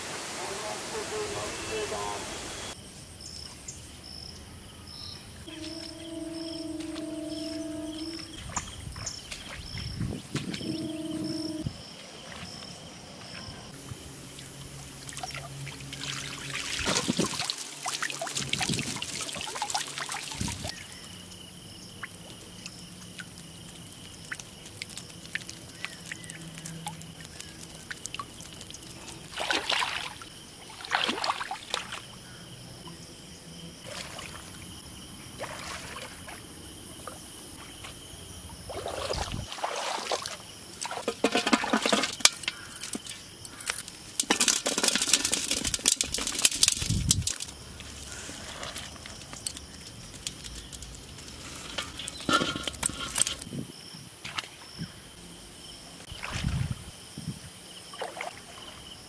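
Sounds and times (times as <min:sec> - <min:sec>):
water splashing and pouring: 0:14.3 - 0:20.8, 0:21.9 - 0:32.1, 0:33.8 - 0:34.6, 0:35.4 - 0:36.4, 0:38.7 - 0:43.1, 0:44.2 - 0:53.5, 0:56.1 - 0:56.8.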